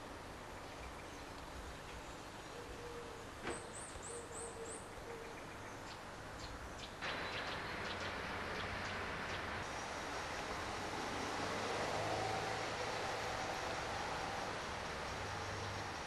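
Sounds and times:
low hooting bird call: 2.5s - 5.6s
truck engine and road noise: 7.0s - 16.0s.

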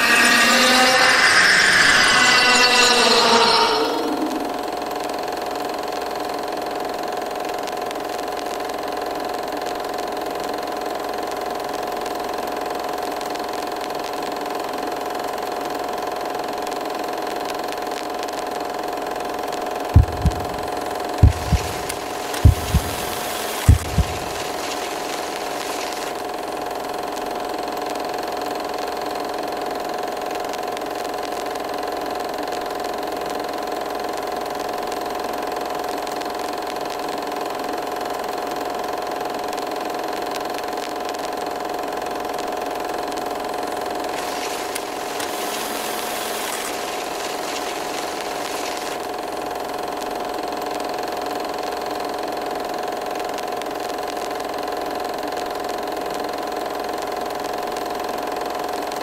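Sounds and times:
droning hum: 0.0s - 5.0s, 20.0s - 26.3s, 44.1s - 49.1s
high hiss: 20.0s - 26.2s, 44.1s - 49.0s.

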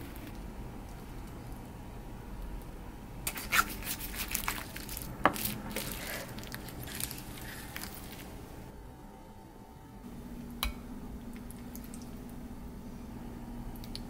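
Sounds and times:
cling film crinkling and crackling: 3.4s - 8.6s.

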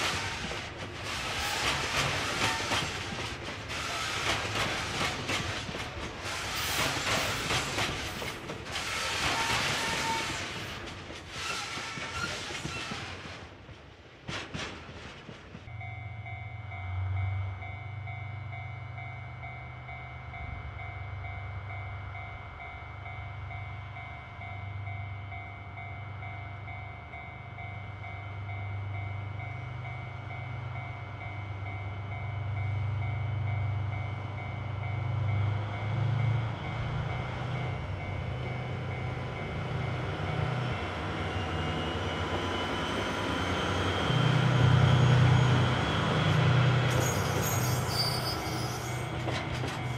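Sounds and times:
train wheels on rails: 0.0s - 20.4s, 22.1s - 49.9s
diesel locomotive engine throbbing: 15.6s - 47.8s
steady ringing tone: 15.7s - 36.4s
thin high wheel squeal: 46.9s - 49.2s.

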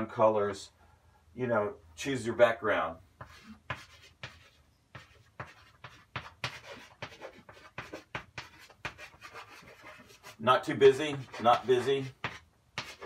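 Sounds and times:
chalk scratching on blackboard: 3.2s - 13.0s.

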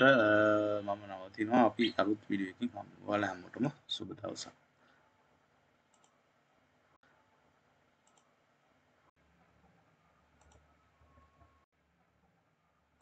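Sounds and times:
computer mouse clicks: 5.9s - 6.2s, 8.0s - 8.3s, 10.4s - 10.7s.

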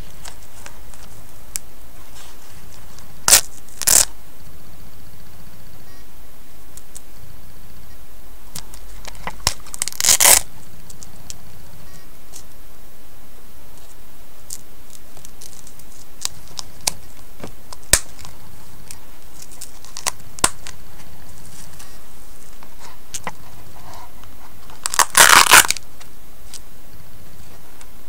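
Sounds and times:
velcro strap ripping open: 3.2s - 4.1s, 9.0s - 10.5s, 17.9s - 18.3s, 19.4s - 20.8s, 24.8s - 25.8s.

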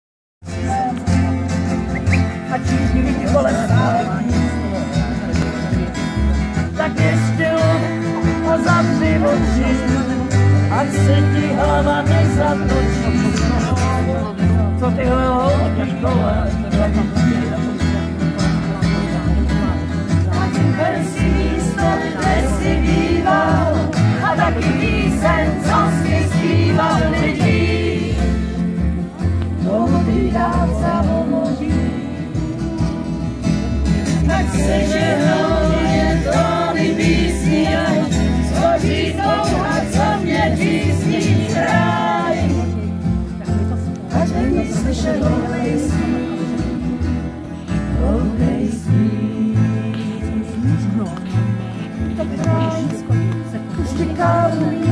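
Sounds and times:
acoustic guitar: 0.4s - 54.9s
double bass: 0.4s - 54.9s
person singing: 52.4s - 54.9s.

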